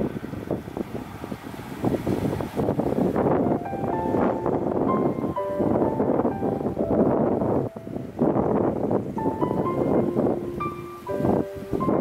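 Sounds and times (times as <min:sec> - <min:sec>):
loud steady rushing noise: 0:00.0 - 0:12.0
background music with piano: 0:03.2 - 0:12.0.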